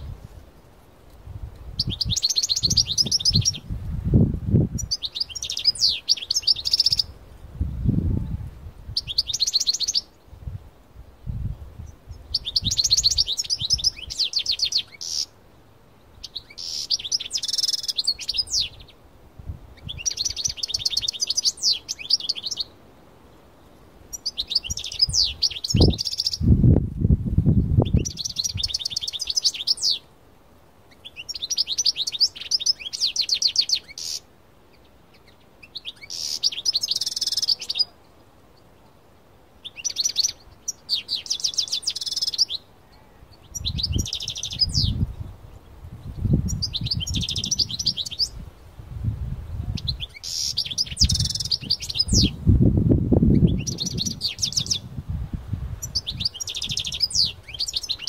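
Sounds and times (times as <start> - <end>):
goldfinch twittering and trilling: 1.8 - 3.6, 4.8 - 7.1, 9.0 - 10.1, 12.2 - 15.3, 16.2 - 18.9, 19.8 - 22.7, 24.1 - 26.4, 27.8 - 30.0, 35.1 - 37.9, 39.6 - 42.7, 43.3 - 45.2, 46.0 - 48.4, 49.7 - 52.4, 53.3 - 54.9, 55.8 - 58.0.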